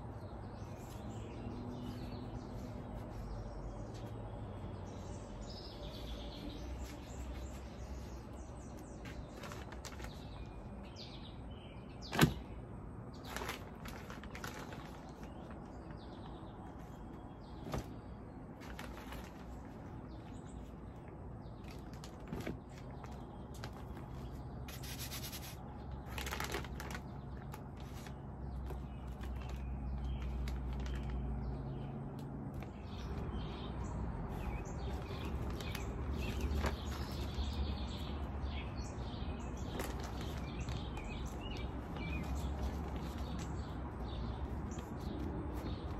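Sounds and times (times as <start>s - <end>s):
gloved hands rustling and scraping: 0.1s - 4.5s, 21.6s - 28.2s.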